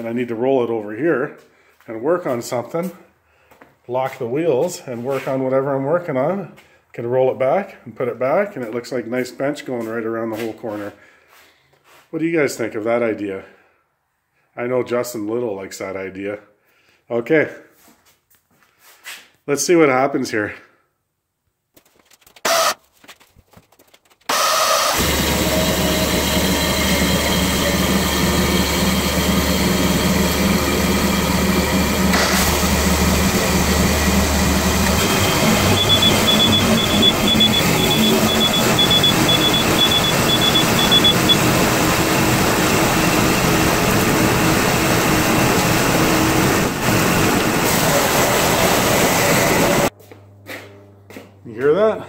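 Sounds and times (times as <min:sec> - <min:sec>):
mower engine running: 0:24.3 - 0:49.9
smoke alarm beeping: 0:35.0 - 0:41.8.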